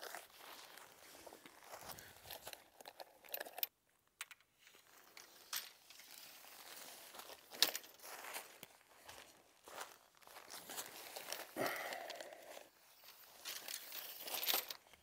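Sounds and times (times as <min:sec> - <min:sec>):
tent fabric rustling: 0:00.0 - 0:02.2, 0:04.7 - 0:13.6
tent poles clicking and tapping: 0:10.8 - 0:15.0.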